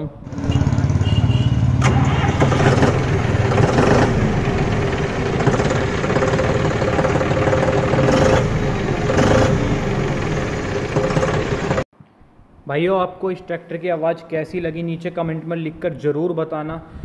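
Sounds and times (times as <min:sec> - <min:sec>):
tractor diesel engine running: 0:00.2 - 0:11.9.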